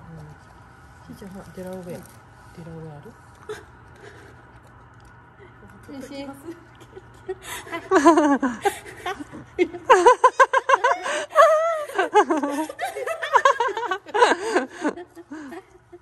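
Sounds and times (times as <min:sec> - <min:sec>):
people laughing heartily: 0:06.8 - 0:16.0.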